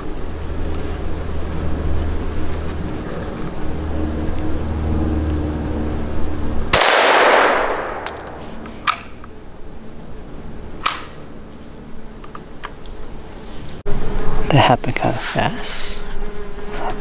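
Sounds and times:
low rumble: 0.0 - 8.9
rifle shot with echo: 6.7 - 8.4.

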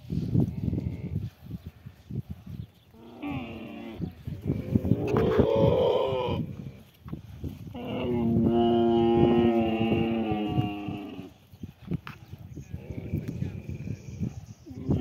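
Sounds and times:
camel moaning: 2.9 - 6.9, 7.6 - 11.4.

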